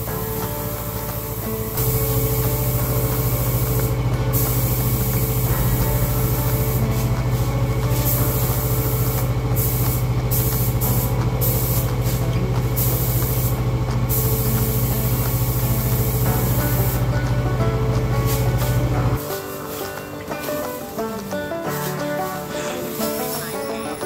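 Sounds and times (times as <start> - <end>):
paint spray gun hissing: 0.0 - 17.1
steady low hum: 0.0 - 19.2.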